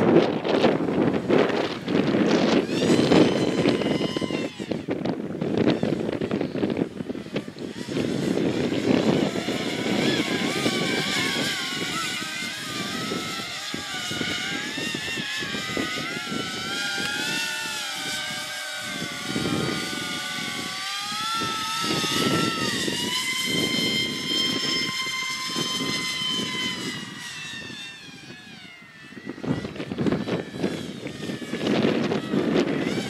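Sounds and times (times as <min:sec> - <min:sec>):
electric ducted fans whining: 0:00.0 - 0:33.0
wind buffeting microphone: 0:00.0 - 0:33.0.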